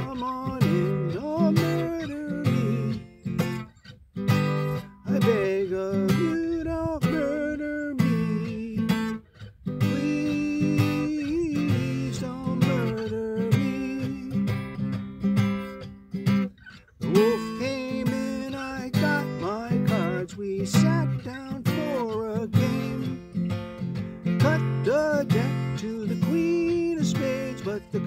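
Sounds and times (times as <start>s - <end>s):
acoustic guitar strumming: 0.0s - 28.0s.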